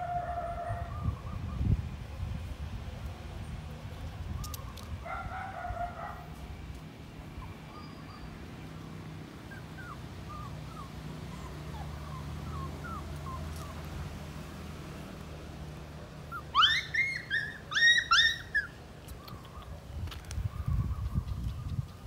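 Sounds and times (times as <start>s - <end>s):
puppy whimpering squeaks: 9.5s - 13.8s, 16.3s - 19.7s.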